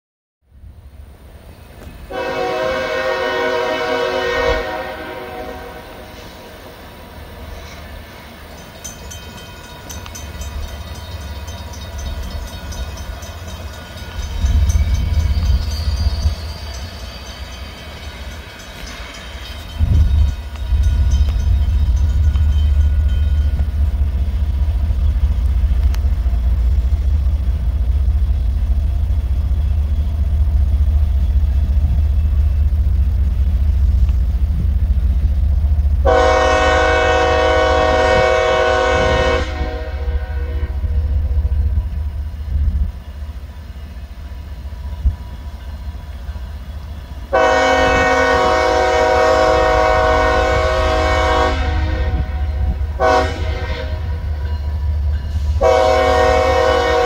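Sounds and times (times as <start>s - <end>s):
train air horn blasts: 2.1s - 6.6s, 36.0s - 41.4s, 47.3s - 54.4s, 55.2s - 57.0s.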